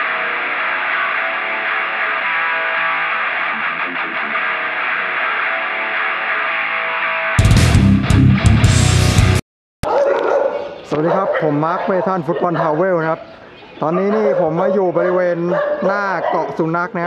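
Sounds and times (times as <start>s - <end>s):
guitar-led background music: 0.0s - 9.4s.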